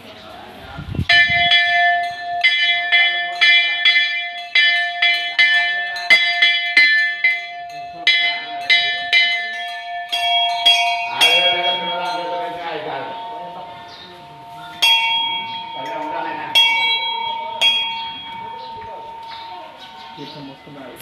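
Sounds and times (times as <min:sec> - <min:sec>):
metal bell ringing: 0:01.1 - 0:21.0.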